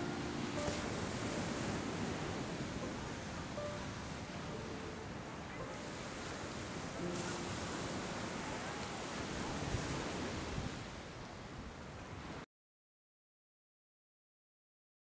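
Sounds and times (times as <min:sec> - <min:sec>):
ocean waves on a sandy beach: 0:00.0 - 0:12.4
wind on the microphone: 0:00.0 - 0:12.4.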